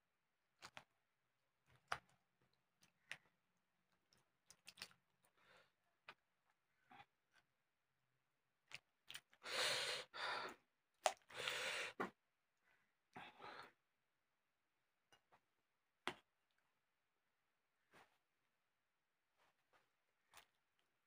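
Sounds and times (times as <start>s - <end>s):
hand mixing wet rice in bowl: 1.6s - 6.3s, 8.6s - 9.4s.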